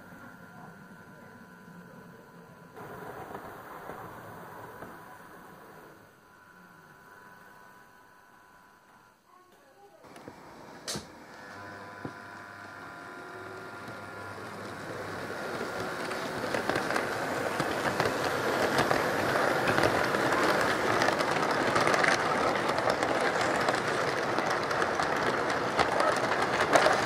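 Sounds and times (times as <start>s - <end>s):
model train motor hum: 0.0s - 9.2s, 9.8s - 27.0s
model train wheels rattling: 13.4s - 27.0s.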